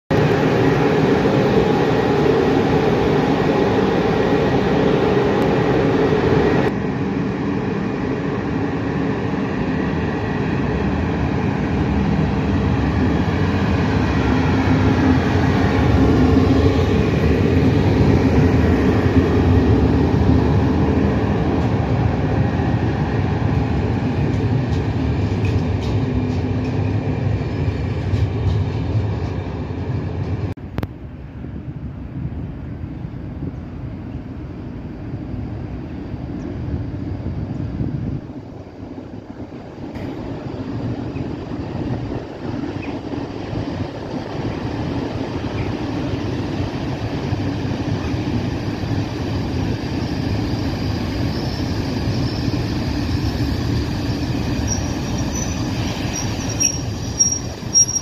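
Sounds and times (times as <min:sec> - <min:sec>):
electric locomotive droning: 0:00.1 - 0:58.0
train wheels clicking on rails: 0:09.8 - 0:30.5, 0:38.4 - 0:58.0.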